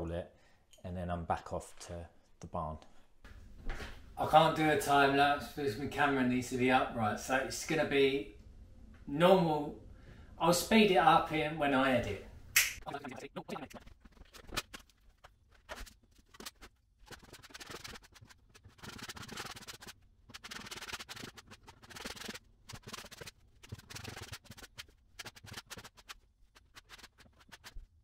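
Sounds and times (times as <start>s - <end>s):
spreader scraping adhesive: 15.6s - 27.9s.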